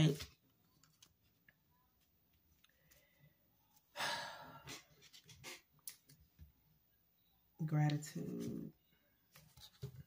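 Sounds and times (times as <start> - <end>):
cards rustling and clicking: 0.0 - 3.0.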